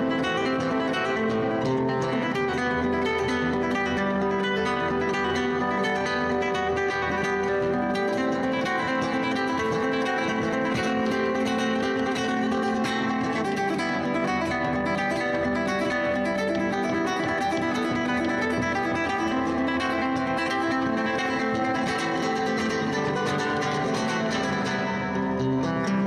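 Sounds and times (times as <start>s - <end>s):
plucked acoustic guitar music: 0.0s - 26.0s.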